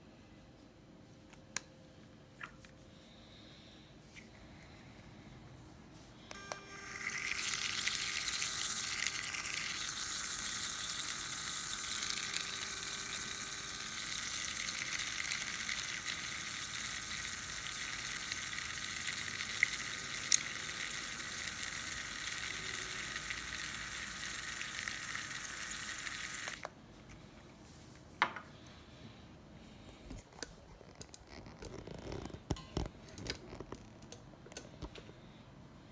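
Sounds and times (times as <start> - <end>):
milk frother whirring: 6.4 - 26.7.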